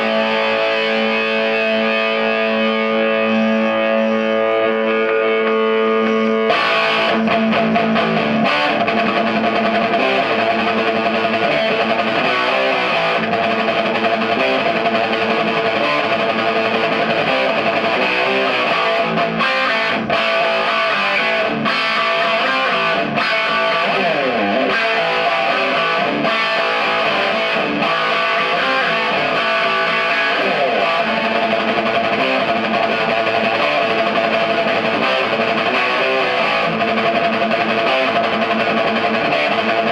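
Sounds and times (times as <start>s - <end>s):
overdriven electric guitar riffs: 0.0s - 39.9s.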